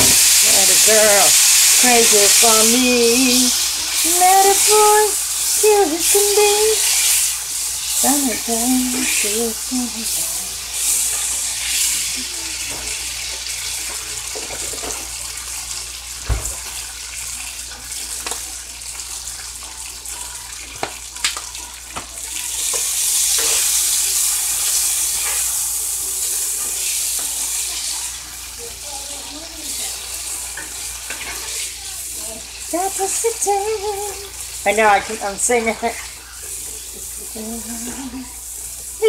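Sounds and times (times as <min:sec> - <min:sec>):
person singing: 0:00.0 - 0:07.0, 0:08.0 - 0:10.6, 0:31.9 - 0:34.4, 0:36.8 - 0:38.5
vegetables sizzling in oil: 0:00.0 - 0:39.0.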